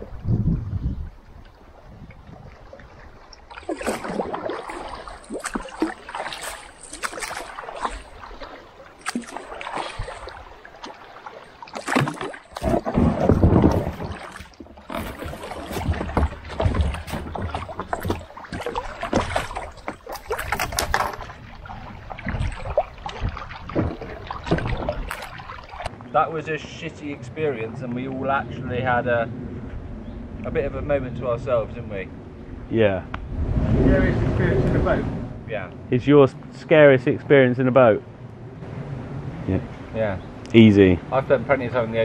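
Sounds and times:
water sloshing against plastic hull: 0.0s - 26.2s
deep water rush: 1.1s - 29.7s, 30.3s - 42.0s
paddle strokes splashing: 1.2s - 26.0s.

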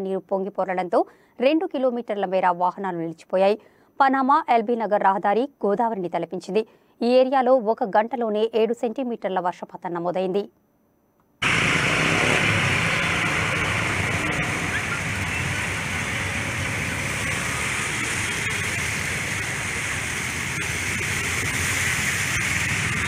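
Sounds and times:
floodwater rushing: 11.4s - 23.0s
traffic driving through water: 11.4s - 23.0s.

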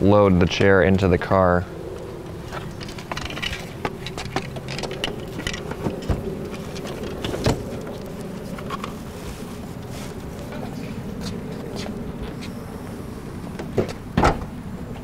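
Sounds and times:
steady low hum: 0.0s - 15.0s
metal wheelchair frame clunking: 2.5s - 9.0s.

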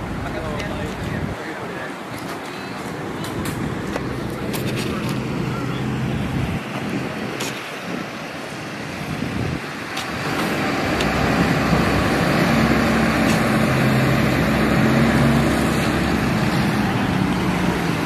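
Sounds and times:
large truck engine humming: 0.0s - 18.0s
outdoor street noise: 0.0s - 18.0s.

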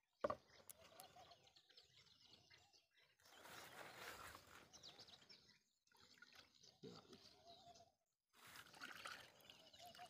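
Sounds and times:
birds chirping: 0.2s - 8.0s
liquid pouring from plastic bottle: 8.4s - 10.0s.

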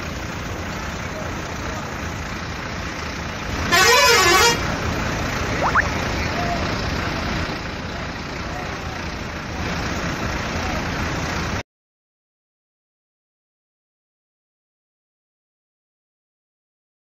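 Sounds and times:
bus engine running: 0.0s - 11.6s
warbling bus horn: 3.6s - 4.8s.

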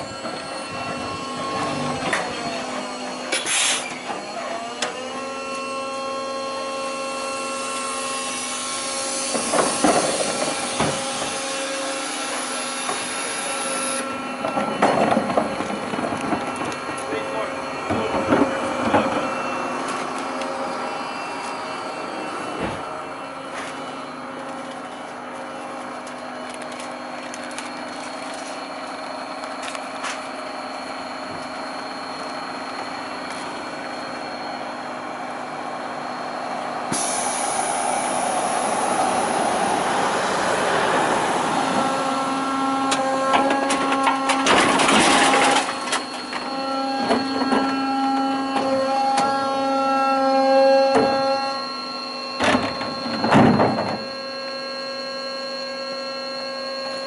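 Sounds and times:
hydraulic bin lifter pump: 0.0s - 39.2s, 41.6s - 57.0s
hiss: 36.9s - 39.0s.

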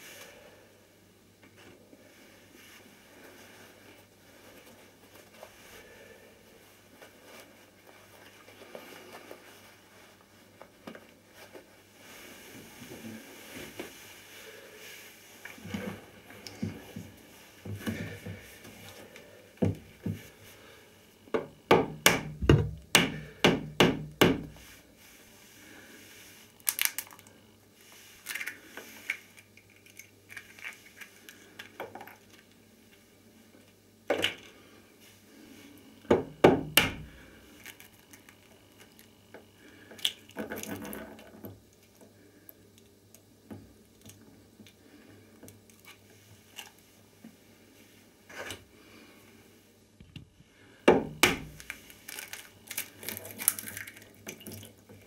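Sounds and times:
knocks on bathtub: 21.7s - 24.5s.

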